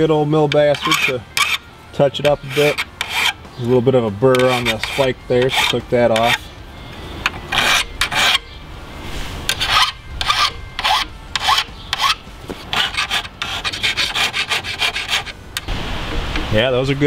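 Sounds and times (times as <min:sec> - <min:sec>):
file rasping on steel: 0:00.5 - 0:06.5, 0:07.3 - 0:08.5, 0:09.5 - 0:15.4.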